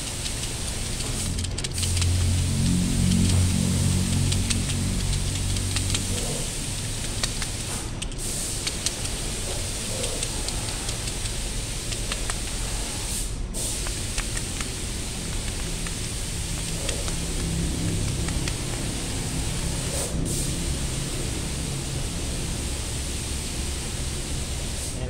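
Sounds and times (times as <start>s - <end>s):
greasy fingers clicking and squishing: 0.0s - 13.0s, 13.7s - 19.8s
steady hiss: 0.0s - 25.0s.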